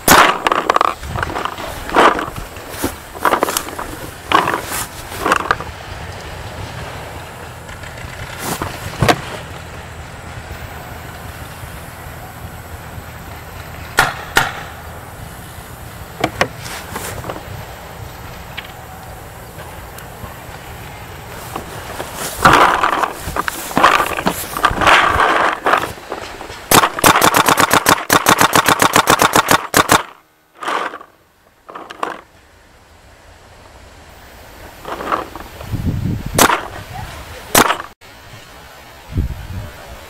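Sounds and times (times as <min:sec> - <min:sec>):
single sharp paintball shots: 0:00.0 - 0:00.8, 0:14.0 - 0:14.8, 0:26.7 - 0:31.0, 0:36.4 - 0:36.8, 0:37.6 - 0:37.9
paintball marker rapid fire: 0:00.0 - 0:01.0, 0:14.0 - 0:14.7, 0:26.7 - 0:31.1, 0:36.4 - 0:36.7, 0:37.6 - 0:37.9
loud bursts of noise: 0:00.0 - 0:31.2.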